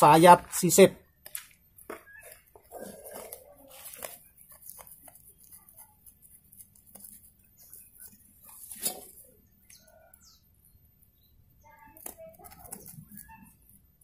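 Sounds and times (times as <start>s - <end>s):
knife scraping bark: 2.2s - 9.9s, 12.0s - 13.7s.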